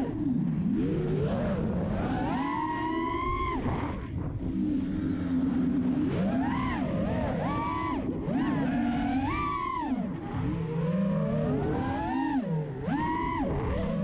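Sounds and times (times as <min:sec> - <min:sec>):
quadcopter motors whining: 0:00.0 - 0:14.0.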